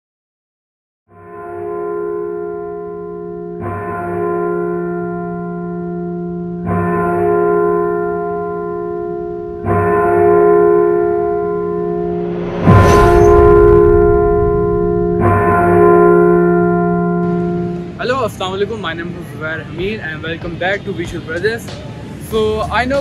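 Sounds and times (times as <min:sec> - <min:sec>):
deep bell tolling: 0:01.1 - 0:19.0.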